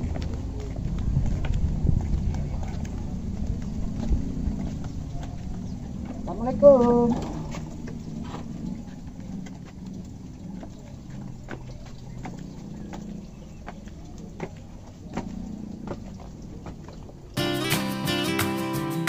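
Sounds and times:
low background rumble: 0:00.0 - 0:17.4
footsteps on ground: 0:00.0 - 0:17.6
strummed acoustic guitar music: 0:17.4 - 0:19.0.

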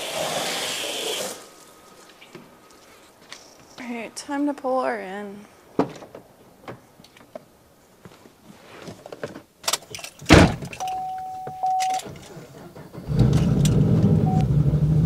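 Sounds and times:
car door slamming: 0:10.2 - 0:13.9.

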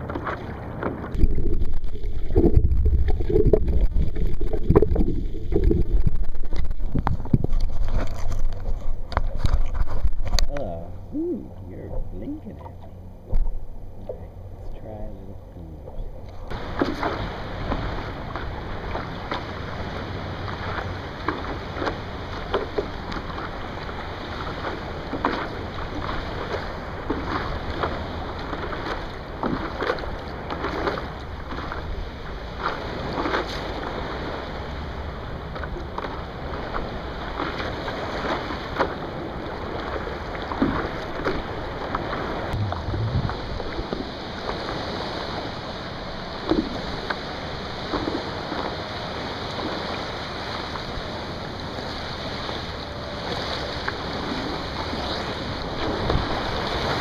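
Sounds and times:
small waves lapping and splashing: 0:00.0 - 0:57.0
wind on microphone: 0:01.0 - 0:12.2, 0:42.2 - 0:45.5.

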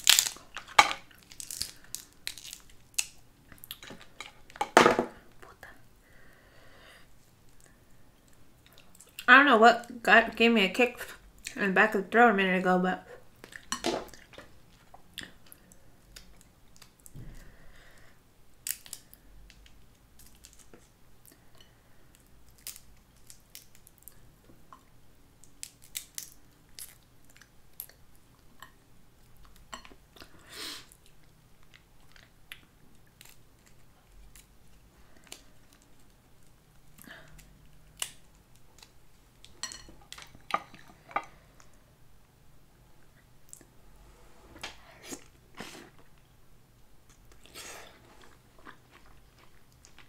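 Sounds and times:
crab shell cracking: 0:00.0 - 0:04.0, 0:18.6 - 0:20.8, 0:22.5 - 0:24.2, 0:25.4 - 0:27.0, 0:37.3 - 0:40.8
soft chewing: 0:07.1 - 0:09.3, 0:18.7 - 0:41.9, 0:44.6 - 0:50.0.

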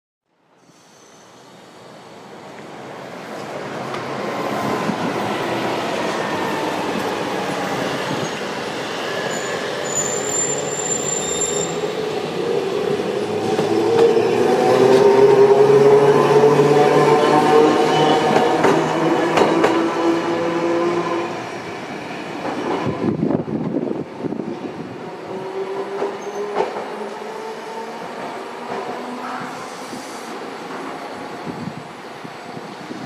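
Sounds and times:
streetcar rolling along tracks: 0:00.5 - 0:33.0
high wheel squeal: 0:00.6 - 0:01.6, 0:07.6 - 0:12.1.

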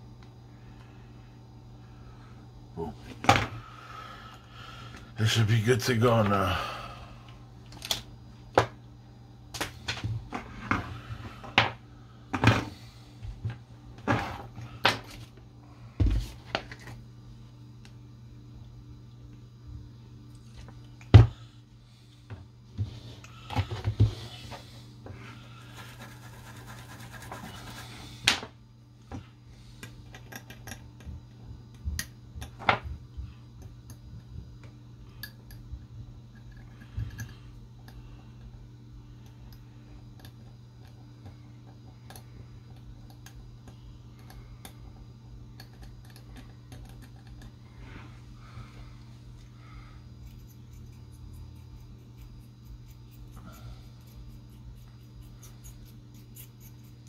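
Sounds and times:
steady low hum: 0:00.0 - 0:57.0
scratchy rubbing: 0:25.6 - 0:28.0
toothbrush scrubbing circuit board: 0:25.6 - 0:28.0, 0:50.3 - 0:57.0.

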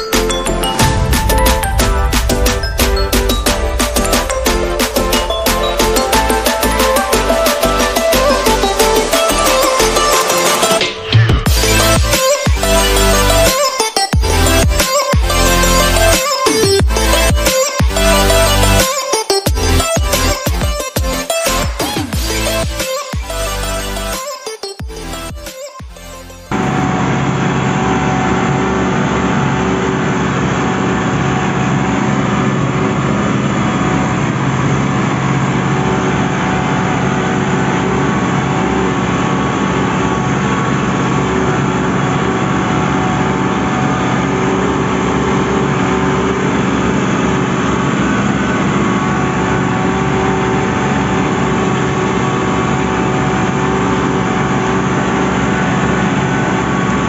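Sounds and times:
tractor diesel engine under load: 0:00.0 - 0:13.5, 0:14.2 - 0:18.8, 0:26.5 - 0:57.0.

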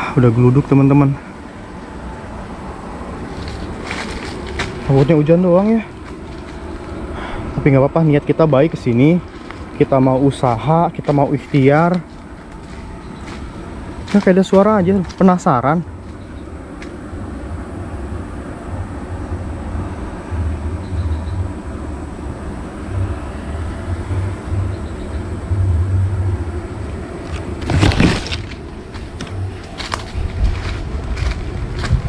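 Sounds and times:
low rumble: 0:00.0 - 0:32.0
loud crackling leaf rustle: 0:02.9 - 0:17.0, 0:27.2 - 0:32.0
footsteps rustling in dry leaves: 0:03.1 - 0:17.0, 0:27.3 - 0:32.0.

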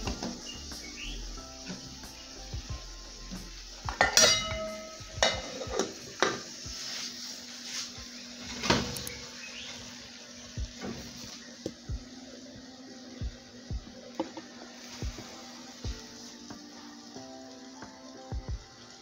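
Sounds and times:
metal cookware clanking: 0:03.9 - 0:06.6, 0:08.4 - 0:09.2.

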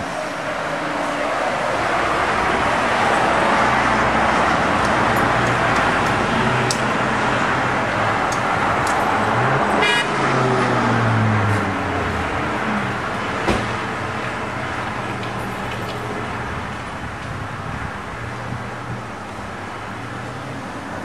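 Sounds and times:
road traffic passing: 0:00.0 - 0:21.0
car horn toot: 0:09.8 - 0:10.2.

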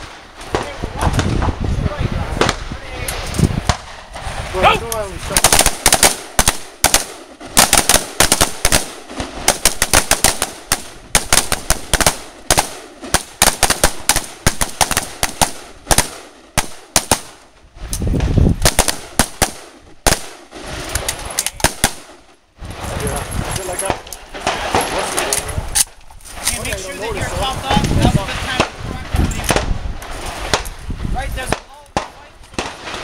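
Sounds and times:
rifles firing rapidly: 0:05.2 - 0:17.4, 0:18.6 - 0:22.2.

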